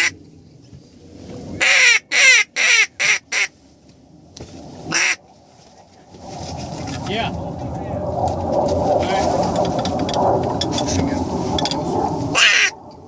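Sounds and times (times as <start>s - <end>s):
faint wind rumble: 0.0s - 13.0s
duck call quacks: 1.6s - 3.5s, 4.9s - 5.2s, 12.3s - 12.8s.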